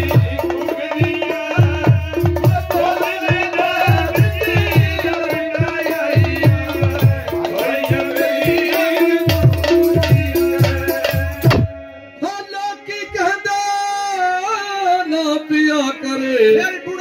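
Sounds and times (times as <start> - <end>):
hand drum rhythm: 0.0 - 11.7
man singing into microphone: 0.0 - 17.0.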